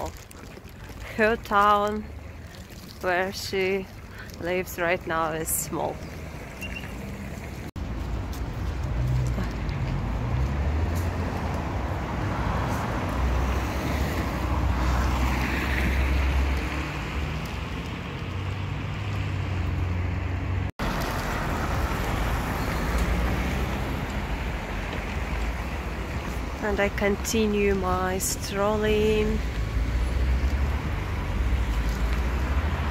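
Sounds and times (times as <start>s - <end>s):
cars passing on street: 0.0s - 32.9s.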